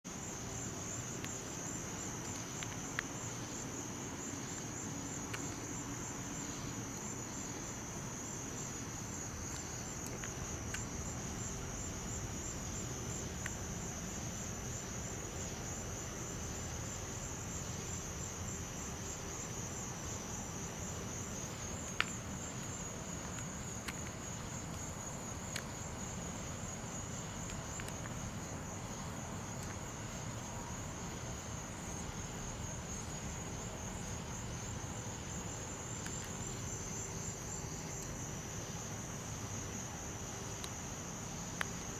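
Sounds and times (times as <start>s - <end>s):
crickets trilling: 0.0s - 41.9s
low hiss: 0.1s - 41.9s
faint sharp clicks: 2.2s - 3.1s.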